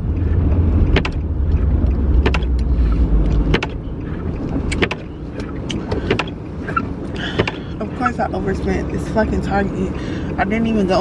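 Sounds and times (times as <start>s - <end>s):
engine and road rumble: 0.0s - 11.0s
sharp clicks: 0.9s - 6.4s.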